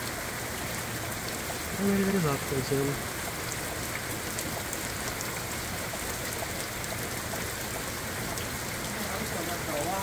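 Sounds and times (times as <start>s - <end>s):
heavy rain hissing: 0.0s - 5.9s
raindrops ticking on surfaces: 0.0s - 10.0s.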